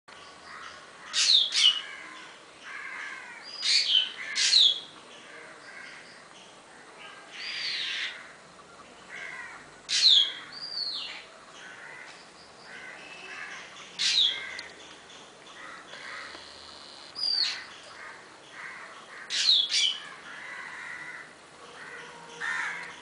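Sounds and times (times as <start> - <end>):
bird chatter: 9.2 - 21.0.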